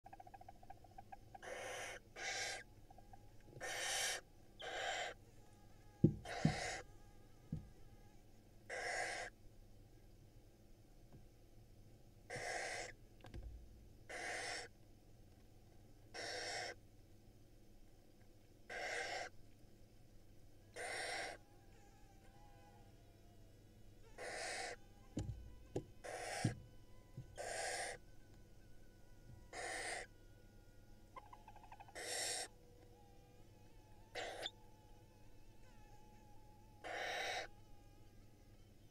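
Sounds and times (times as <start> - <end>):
owl nestlings hissing: 1.1 - 2.7, 3.6 - 5.2, 6.1 - 6.9, 8.7 - 9.4, 12.3 - 13.0, 14.1 - 14.7, 16.1 - 16.8, 18.7 - 19.4, 20.7 - 21.8, 24.1 - 26.6, 27.2 - 28.0, 29.5 - 30.1, 31.2 - 32.6, 34.1 - 34.6, 35.6 - 37.6
dull bumps in nest box: 6.0 - 6.8.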